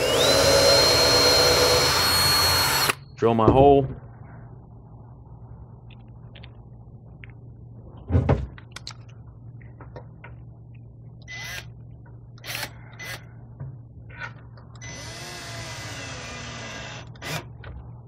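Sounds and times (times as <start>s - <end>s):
cordless drill driving screw: 0.0s - 3.0s, 14.8s - 17.5s
loud thump: 8.1s - 8.5s.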